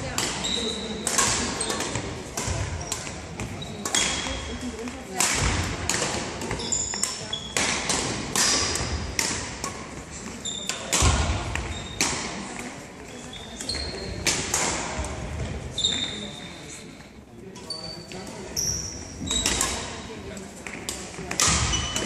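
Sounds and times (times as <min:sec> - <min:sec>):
rackets hitting shuttlecocks: 0:00.0 - 0:12.9, 0:13.5 - 0:16.1, 0:18.2 - 0:22.0
shoes squeaking on court: 0:02.5 - 0:04.7, 0:06.4 - 0:07.7, 0:10.1 - 0:10.9, 0:11.6 - 0:12.1, 0:13.1 - 0:14.3, 0:15.6 - 0:16.7, 0:17.6 - 0:20.0.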